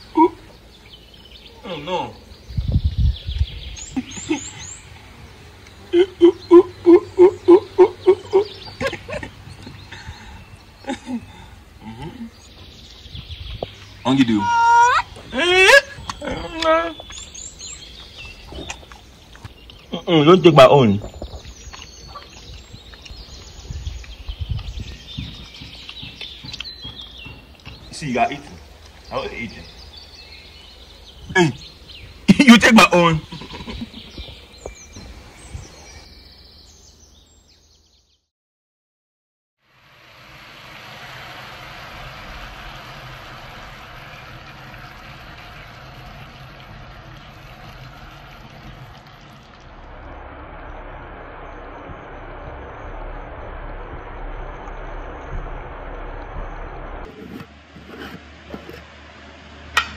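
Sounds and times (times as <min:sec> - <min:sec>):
small birds chirping: 0:00.0 - 0:38.2
dull low thumps: 0:02.4 - 0:03.8, 0:22.4 - 0:29.0, 0:41.8 - 0:57.1
low hum: 0:39.6 - 0:59.9
egg sizzling in a frying pan: 0:39.7 - 0:50.0.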